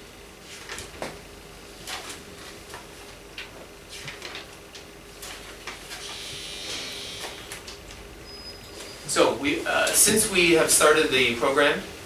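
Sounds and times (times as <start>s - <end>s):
faint room tone hum: 0.0s - 12.0s.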